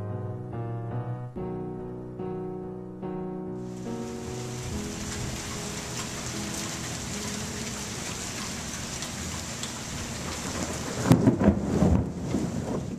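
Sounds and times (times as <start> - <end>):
piano notes: 0.0 - 11.6
steady hiss: 3.6 - 11.0.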